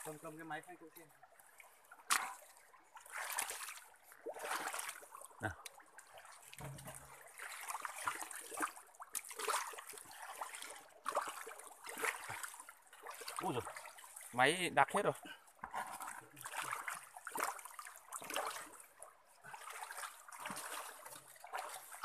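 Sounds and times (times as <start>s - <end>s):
water splashing: 0.0s - 22.0s
water trickling: 0.0s - 22.0s
mud squelching: 2.0s - 14.4s, 15.6s - 18.8s, 19.5s - 22.0s.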